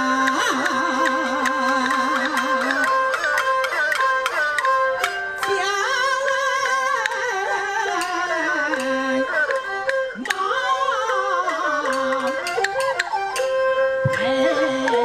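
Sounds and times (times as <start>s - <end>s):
bowed fiddles: 7.1s - 15.0s
wooden clappers clicking: 11.8s - 15.0s.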